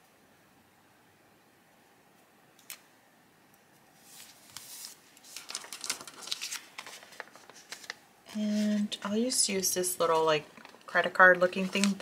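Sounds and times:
paper sticker sheet rustling: 4.0 - 12.0.

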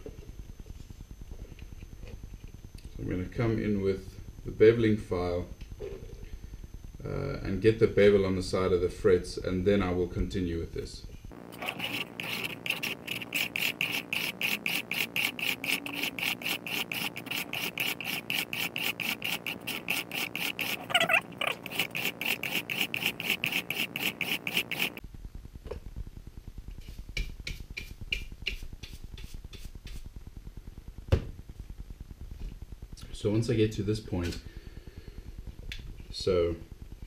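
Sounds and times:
file rasping on metal frets: 11.5 - 25.0.

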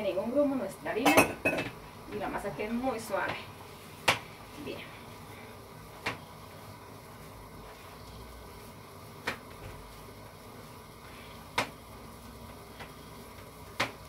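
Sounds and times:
hands kneading dough: 7.1 - 14.0.

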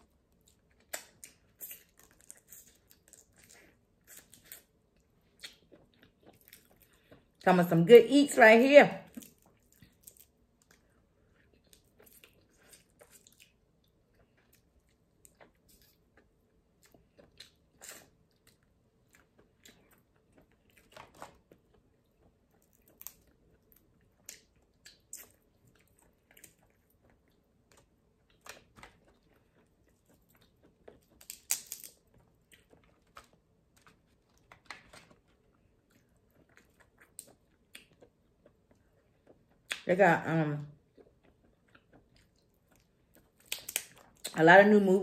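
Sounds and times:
chewing and mouth sounds: 0.1 - 7.4, 9.1 - 39.9, 40.7 - 44.4
crab shell cracking: 31.1 - 32.0, 43.3 - 44.1.

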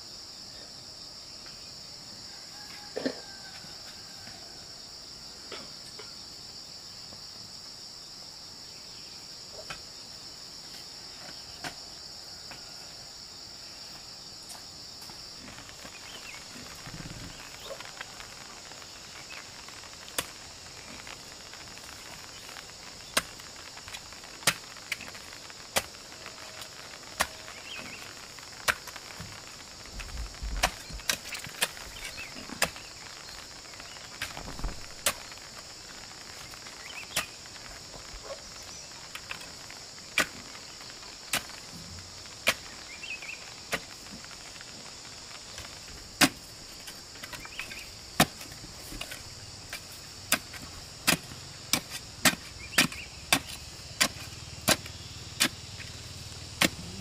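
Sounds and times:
high insect drone: 0.0 - 57.0
digging tool striking stony soil: 30.6 - 32.9, 46.2 - 55.6, 56.6 - 57.0.

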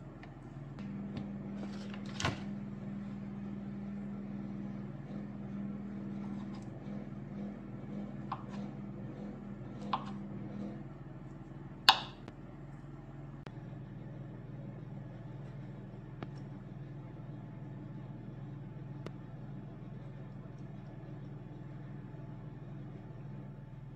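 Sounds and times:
steady low hum: 0.0 - 23.9
knife tapping cutting board: 8.3 - 8.6, 11.9 - 12.2.

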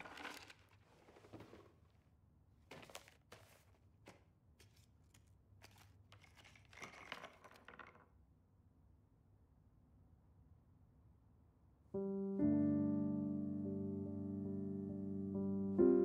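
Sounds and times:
small objects clicking on wood: 5.7 - 8.1.

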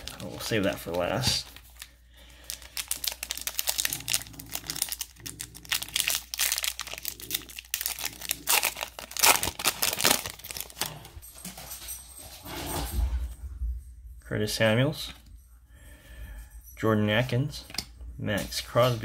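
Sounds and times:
wrapper crinkling and tearing: 0.0 - 11.2.

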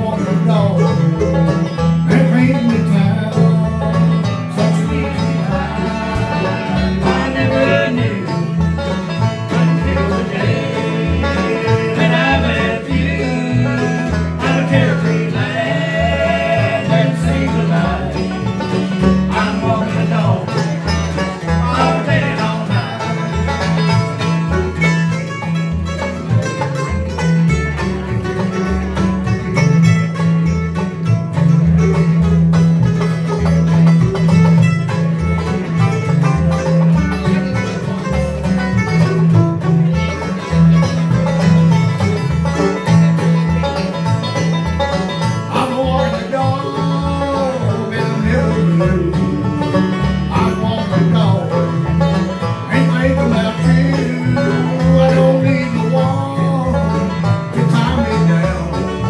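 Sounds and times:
bluegrass band playing: 0.0 - 59.0
thumping bass line: 0.0 - 59.0
voices singing in harmony: 4.5 - 8.6, 9.5 - 20.6, 21.5 - 23.2.

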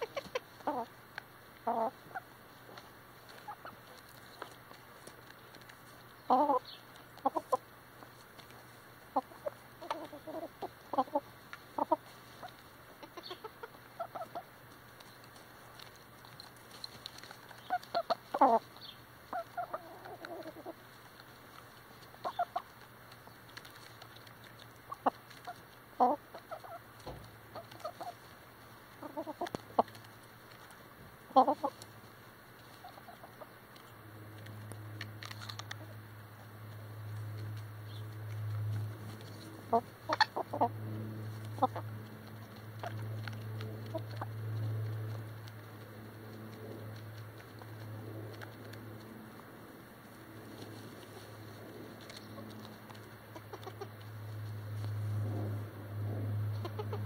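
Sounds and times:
beaks tapping the ground: 0.0 - 57.0
chickens clucking: 0.0 - 57.0.

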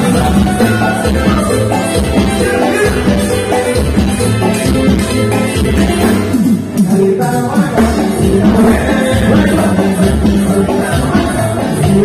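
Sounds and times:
drums and percussion: 0.0 - 12.0
keyboards: 0.0 - 12.0
strong bass line: 0.0 - 12.0.

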